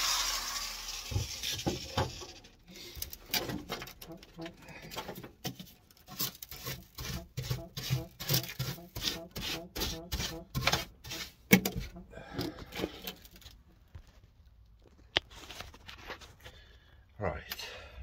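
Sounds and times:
wire brush scrubbing metal: 0.0s - 2.4s, 6.1s - 11.9s.

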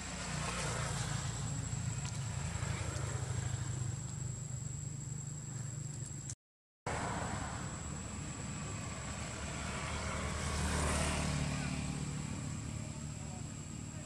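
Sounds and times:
high insect whine: 0.0s - 14.0s
motorbike engine humming: 7.1s - 14.0s.

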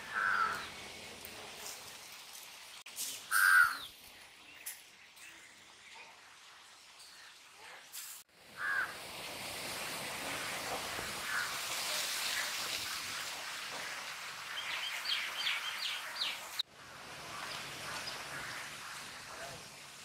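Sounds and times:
birds calling: 0.0s - 1.1s, 3.1s - 6.3s, 13.9s - 16.6s
steady outdoor hiss: 0.0s - 20.0s.

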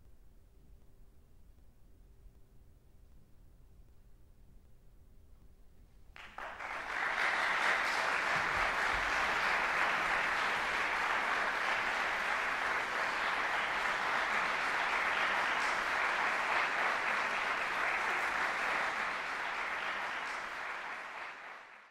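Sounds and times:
audience applause: 6.2s - 21.9s.

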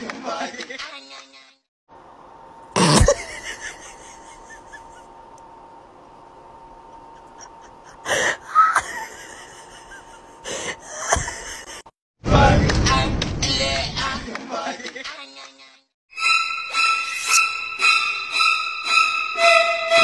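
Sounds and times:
faint steady hum: 1.9s - 11.8s.

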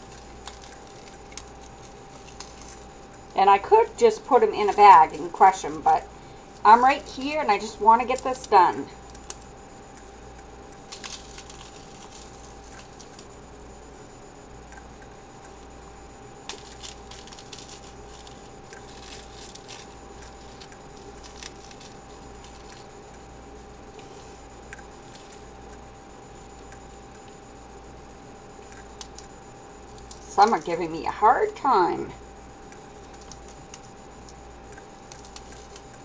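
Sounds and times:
croutons crumbling by hand: 0.0s - 2.9s, 10.9s - 13.3s, 16.4s - 22.9s
steady electrical hum: 0.0s - 36.0s.

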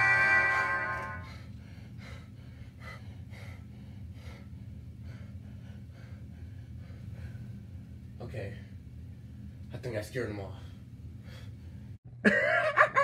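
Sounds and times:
low steady hum: 0.0s - 13.0s
man breathing heavily: 1.2s - 8.1s, 10.5s - 12.0s.

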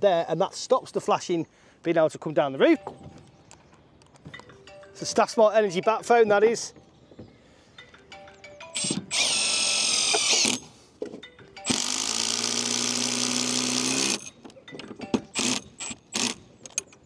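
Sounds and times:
cordless drill motor whine: 8.7s - 10.6s, 11.6s - 14.4s, 15.4s - 16.4s.

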